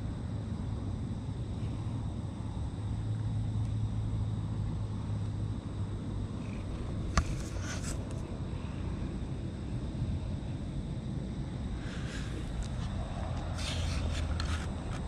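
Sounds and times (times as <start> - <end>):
scratchy rubbing on camera: 7.1 - 8.2, 11.8 - 15.0.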